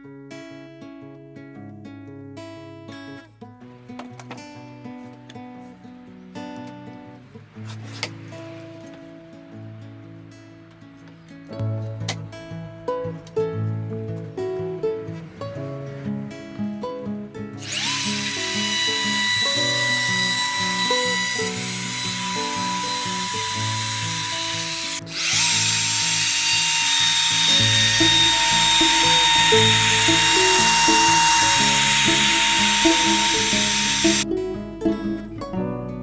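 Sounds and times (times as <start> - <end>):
acoustic guitar music: 0.0 - 26.2, 27.0 - 36.0
wood router whining: 17.6 - 34.2.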